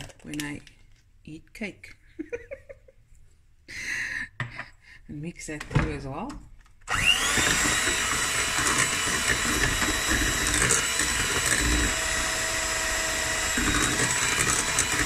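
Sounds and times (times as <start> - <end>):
electric hand mixer whining: 6.9 - 15.0.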